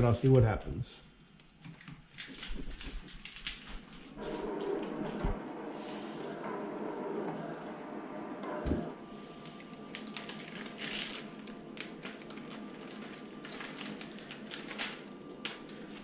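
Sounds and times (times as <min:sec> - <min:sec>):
plastic film crinkling: 0:01.6 - 0:04.2, 0:09.2 - 0:16.0.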